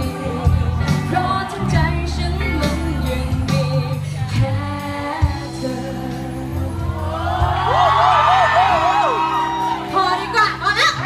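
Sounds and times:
woman singing pop ballad: 0.0s - 7.3s
band with keyboard guitar drums: 0.0s - 11.0s.

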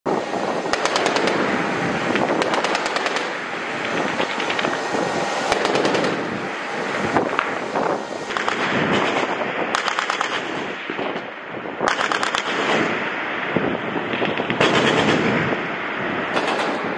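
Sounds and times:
steady background rush: 0.1s - 16.9s
machine gun bursts: 0.7s - 1.5s, 2.1s - 4.8s, 5.5s - 6.4s, 8.3s - 10.7s, 11.9s - 13.0s, 14.3s - 15.3s, 16.4s - 16.9s.

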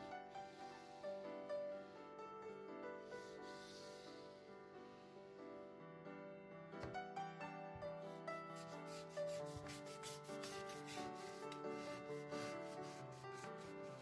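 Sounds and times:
soft piano music: 0.0s - 14.0s
quick rubbing strokes: 8.6s - 14.0s.

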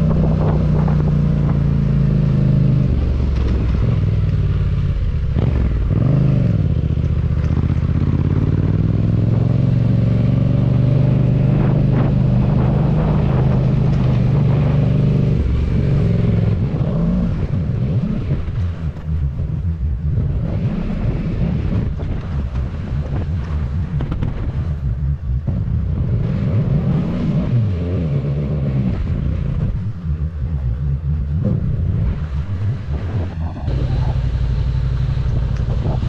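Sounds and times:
motorcycle engine revving: 0.0s - 36.0s.

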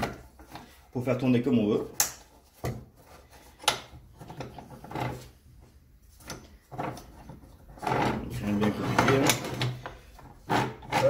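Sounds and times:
soft rubbing and knocks: 2.2s - 11.0s.

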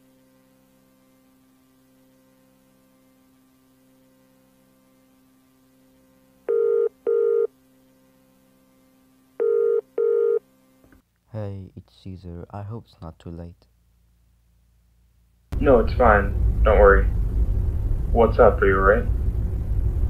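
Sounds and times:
faint steady hum: 0.0s - 20.0s
telephone ringback tone: 6.5s - 7.5s, 9.4s - 10.4s.

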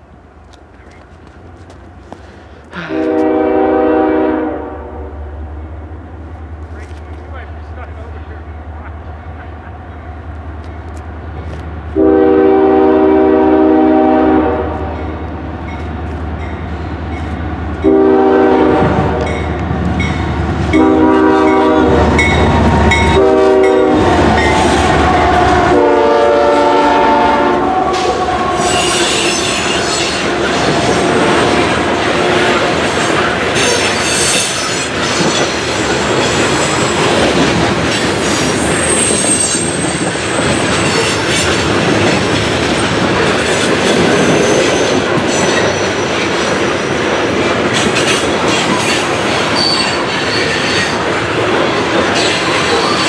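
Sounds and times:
locomotive horn blasts: 2.8s - 5.2s, 12.0s - 15.2s, 17.8s - 19.4s, 20.7s - 32.6s
train wheels clattering on rails: 27.8s - 53.0s
high-pitched wheel squeal: 27.9s - 31.7s, 33.6s - 37.1s, 38.2s - 41.2s, 49.5s - 51.0s.

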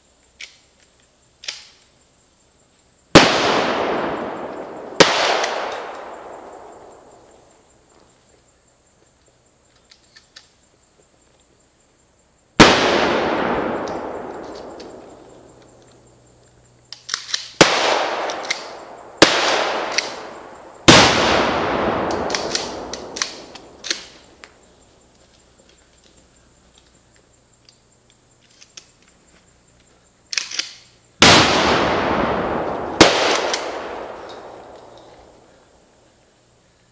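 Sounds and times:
heavy blasts with echo: 3.2s - 7.2s, 12.6s - 15.5s, 17.6s - 24.1s, 31.2s - 35.5s
sharp cracking pops: 3.2s - 8.1s, 12.6s - 27.0s, 30.3s - 35.8s.

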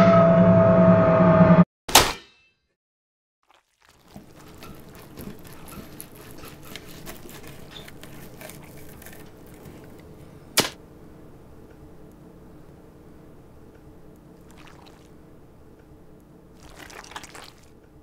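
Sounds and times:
low steady hum: 4.0s - 18.0s.

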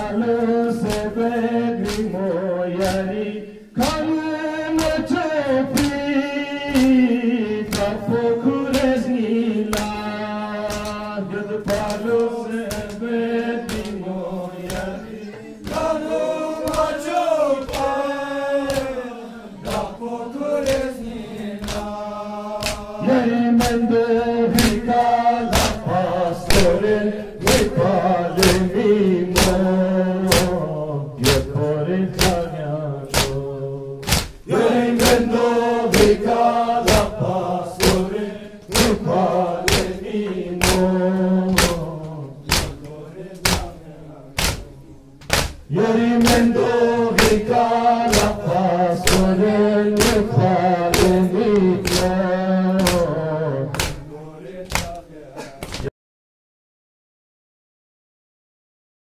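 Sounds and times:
men chanting in unison: 0.0s - 55.9s
hands slapping chests: 0.8s - 1.2s, 1.8s - 2.2s, 2.8s - 3.1s, 3.8s - 4.1s, 4.7s - 5.1s, 5.7s - 6.1s, 6.7s - 7.0s, 7.7s - 9.0s, 9.7s - 11.1s, 11.7s - 15.0s, 15.6s - 19.0s, 19.6s - 20.0s, 20.6s - 23.0s, 23.6s - 23.8s, 24.5s - 26.8s, 27.4s - 27.8s, 28.4s - 29.7s, 30.3s - 30.6s, 31.2s - 31.5s, 32.2s - 33.4s, 34.0s - 43.8s, 44.4s - 52.2s, 52.8s - 54.1s, 54.7s - 55.9s.

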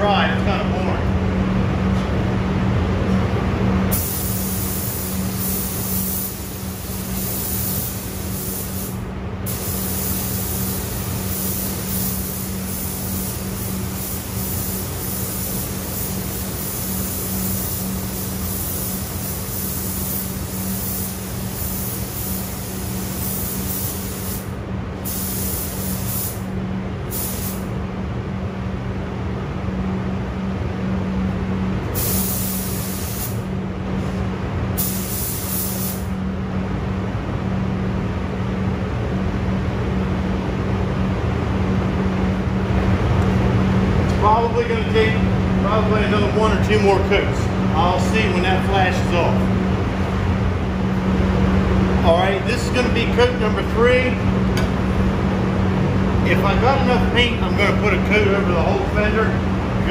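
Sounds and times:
steady low hum: 0.0s - 59.9s
paint spray gun hissing: 3.9s - 26.4s, 27.1s - 27.7s, 32.0s - 33.4s, 34.8s - 36.1s.

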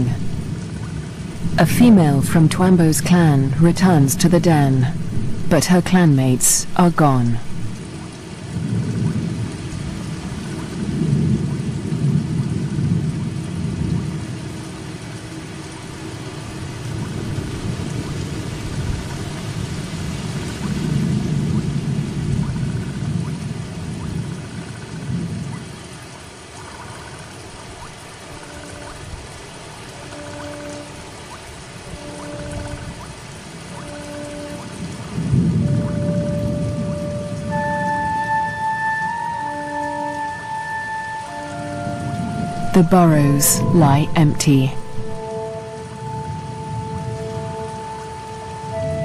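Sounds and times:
soft sustained music notes: 0.0s - 11.1s, 27.9s - 49.0s
heavy rain: 0.0s - 49.0s
thunder rumbling: 7.3s - 25.9s, 27.8s - 39.6s.

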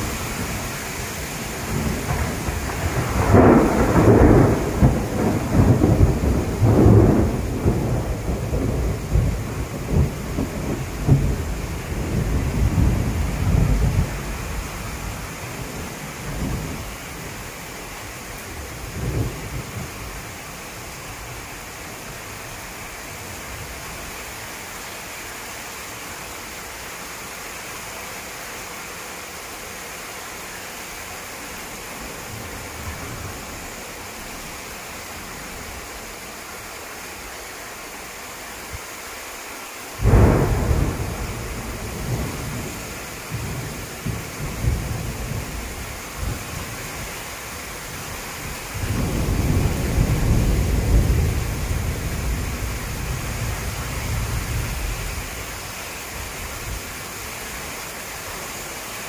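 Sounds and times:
thunder rumbling: 0.0s - 22.2s, 40.0s - 47.1s, 47.9s - 56.9s
steady rain: 0.0s - 59.0s.

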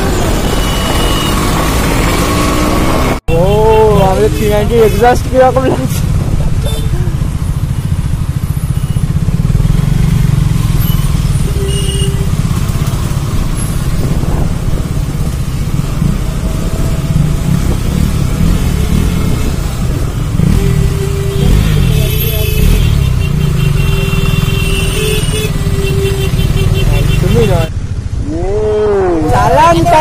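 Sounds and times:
motorcycle exhaust at low speed: 6.4s - 27.3s.

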